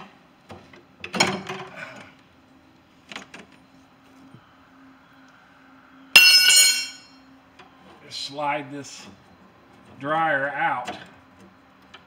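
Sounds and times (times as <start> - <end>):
low steady hum: 1.4 - 10.6
high-pitched metal ring: 6.1 - 7.3.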